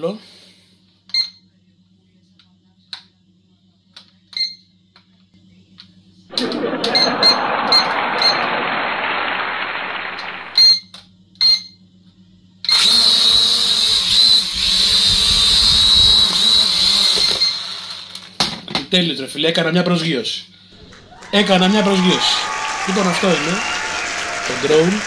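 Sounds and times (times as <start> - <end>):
rushing noise: 6.3 - 10.6.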